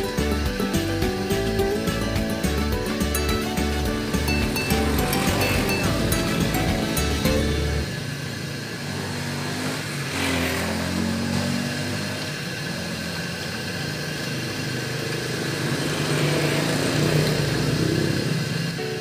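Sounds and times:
motorcycle engine running: 0.0s - 19.0s
vehicle passing: 1.2s - 12.7s, 15.1s - 18.8s.

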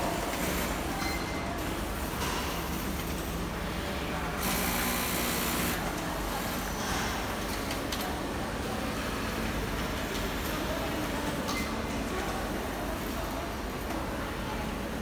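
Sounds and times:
industrial sewing machines running: 0.0s - 0.9s, 3.0s - 6.8s
steady hall hum: 0.0s - 15.0s.

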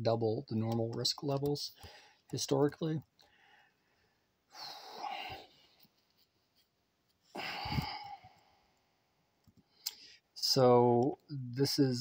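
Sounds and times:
man breathing: 1.8s - 2.3s, 3.2s - 5.9s, 7.3s - 10.3s.

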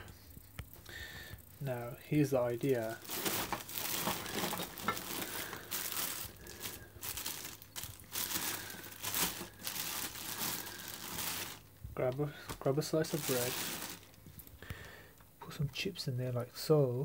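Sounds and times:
plastic bag crinkling: 2.4s - 14.6s.

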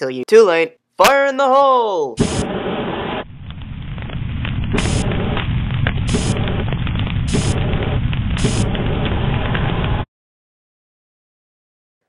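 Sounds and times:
flamethrower fire rushing: 2.2s - 10.1s.

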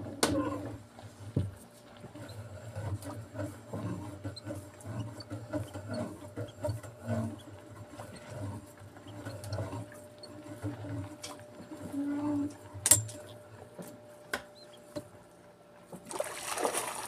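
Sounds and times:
fishing line rubbing and knocking: 2.1s - 12.1s.

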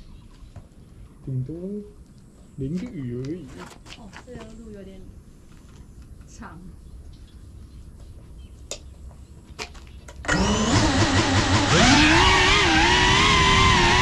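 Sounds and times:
drone motors whining: 10.2s - 14.0s.

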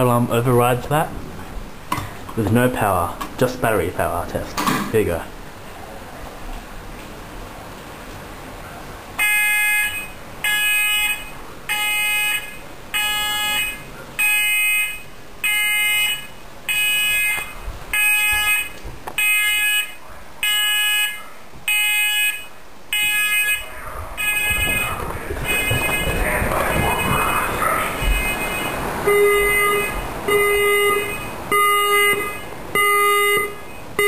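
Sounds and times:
fire alarm pulsed beep: 9.2s - 34.0s.

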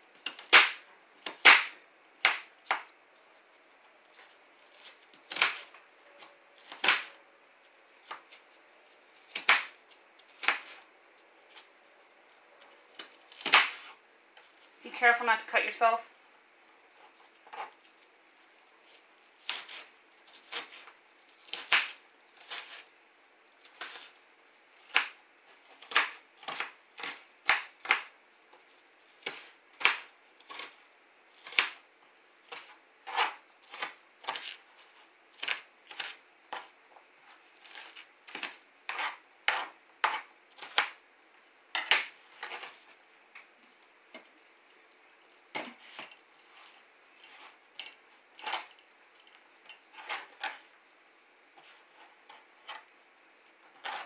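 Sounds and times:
knife chopping on cutting board: 37.6s - 41.0s.

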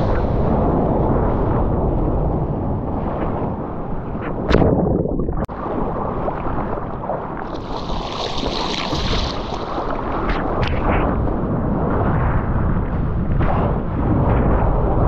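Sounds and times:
low rumble of water: 0.0s - 15.0s
wind on microphone: 0.0s - 15.0s
seawater sloshing and splashing: 7.4s - 10.7s
hissing rush of water: 7.5s - 10.3s.

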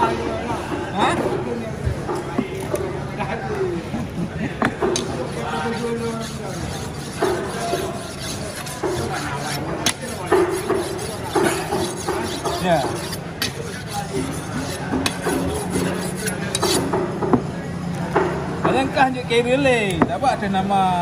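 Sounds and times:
knife scraping on whetstone: 4.8s - 17.0s.

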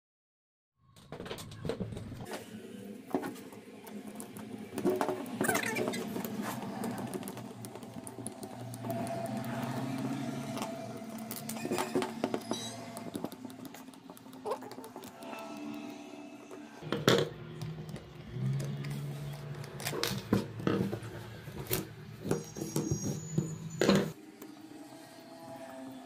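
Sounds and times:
screwdriver clicking and scraping: 4.1s - 16.7s.

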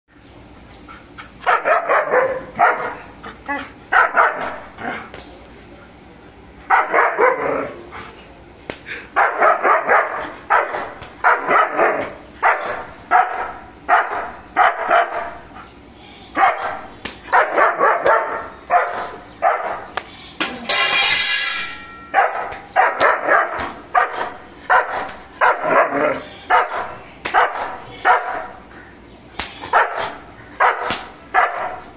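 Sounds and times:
dog long held sound: 0.7s - 5.1s, 9.0s - 20.0s
dog barking aggressively: 1.4s - 5.0s, 6.7s - 7.8s, 9.2s - 15.5s, 16.4s - 19.9s, 22.1s - 28.6s, 29.6s - 31.9s.

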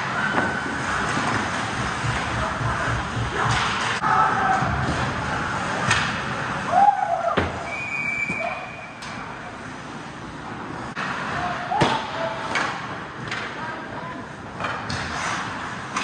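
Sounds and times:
referee whistle: 7.6s - 9.0s.

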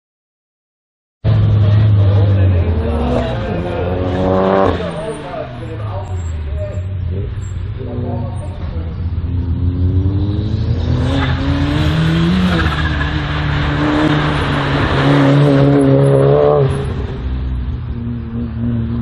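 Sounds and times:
race car engine revving: 1.2s - 19.0s.

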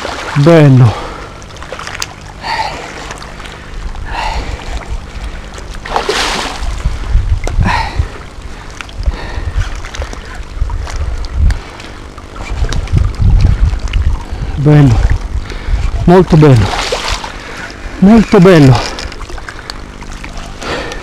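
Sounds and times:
wind rumble on microphone: 2.8s - 18.0s
fish splashing at surface: 5.8s - 6.8s, 16.6s - 17.5s.

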